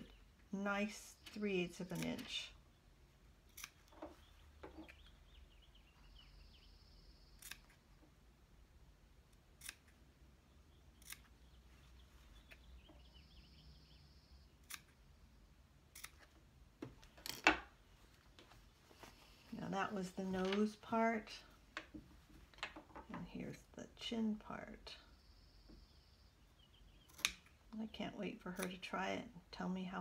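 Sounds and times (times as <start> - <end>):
scissors snipping fabric: 1.8 - 2.4, 3.5 - 3.9, 9.4 - 10.0, 15.9 - 16.3.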